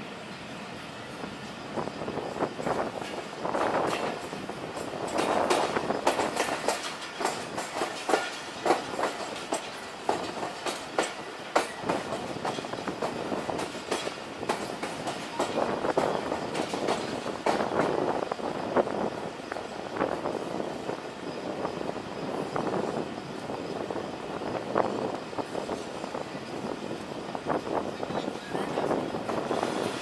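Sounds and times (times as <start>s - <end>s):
train rolling rumble: 0.0s - 30.0s
train wheels clacking over rail joints: 2.4s - 18.2s.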